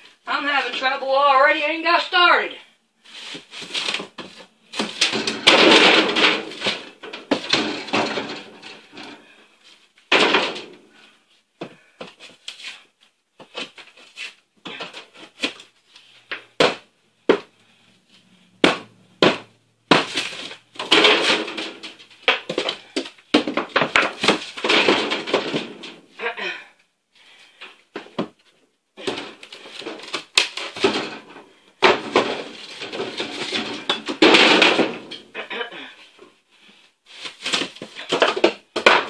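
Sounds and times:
ceiling scraping and crumbling: 3.1s - 11.1s, 20.0s - 26.2s, 29.0s - 35.7s
sharp knocks and bangs: 4.8s - 8.8s, 10.1s - 10.8s, 18.6s - 26.0s, 30.6s - 35.3s.

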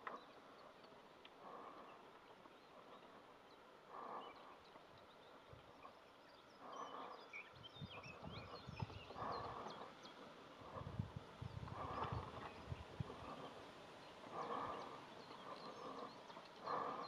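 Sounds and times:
chamois breathy grunts: 9.1s - 10.0s, 14.2s - 17.0s.

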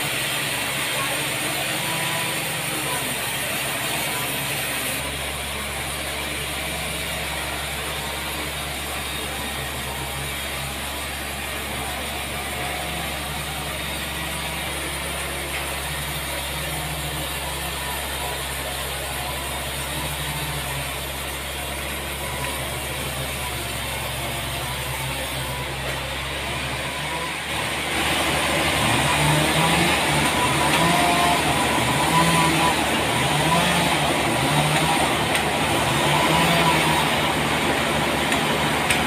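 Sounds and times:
band sawmill humming: 0.0s - 39.0s.

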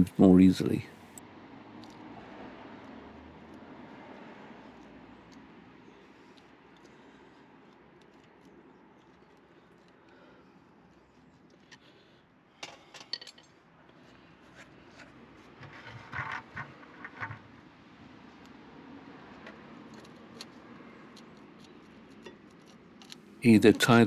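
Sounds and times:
knocks and rustles: 14.9s - 17.6s.

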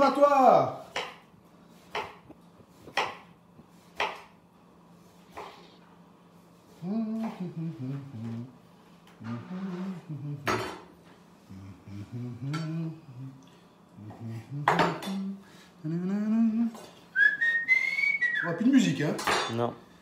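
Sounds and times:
man humming: 6.7s - 10.8s, 11.4s - 16.8s
person whistling: 17.2s - 18.5s.

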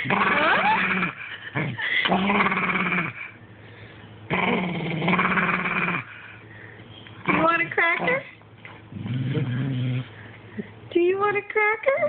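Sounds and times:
dog growling: 0.0s - 3.4s, 4.3s - 6.4s, 7.2s - 10.3s.

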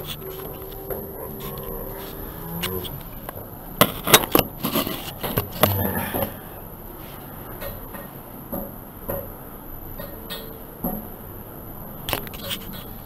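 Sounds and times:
rubbing against microphone: 0.0s - 3.2s, 4.6s - 5.3s.

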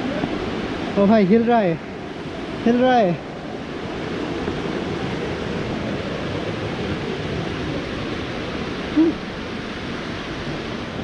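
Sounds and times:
flowing stream water: 0.0s - 11.0s.

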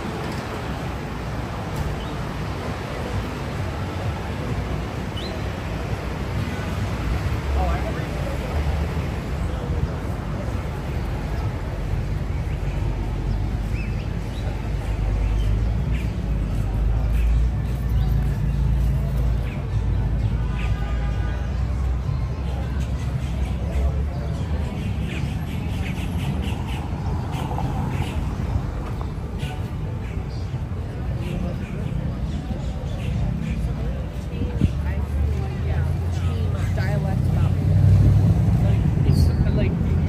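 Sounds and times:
steady low street rumble: 0.0s - 40.0s
birds calling: 22.1s - 34.8s.

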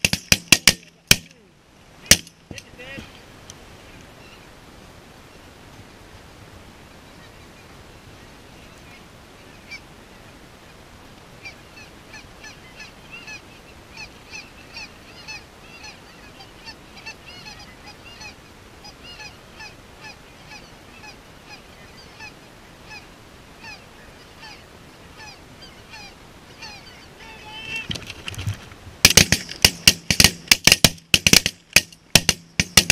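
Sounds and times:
steady hiss: 0.0s - 32.9s
geese honking: 8.6s - 10.8s, 11.4s - 28.0s.

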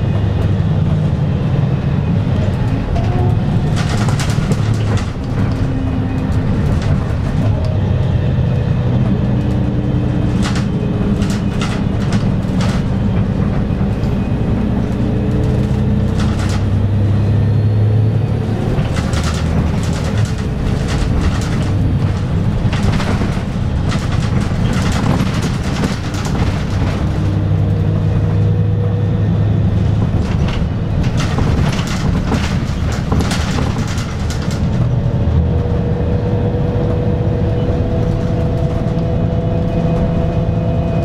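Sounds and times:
bus diesel engine drone: 0.0s - 41.0s
road rumble: 0.0s - 41.0s
body rattles and knocks: 2.2s - 17.1s, 18.5s - 28.7s, 29.7s - 35.7s.

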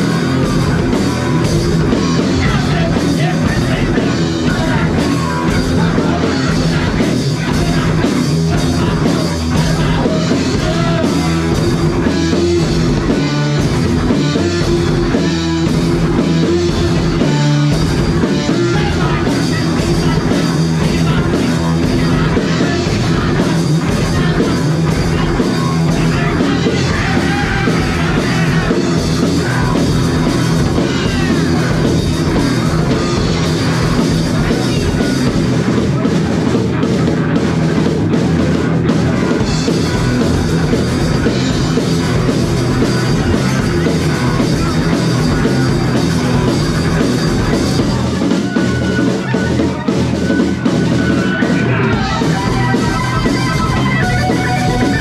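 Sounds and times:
bass guitar: 0.0s - 55.0s
drum kit: 0.0s - 55.0s
electric guitars: 0.0s - 55.0s.

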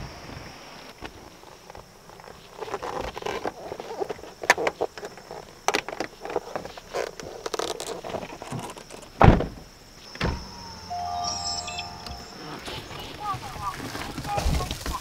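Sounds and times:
truck door shutting: 9.2s - 13.2s.

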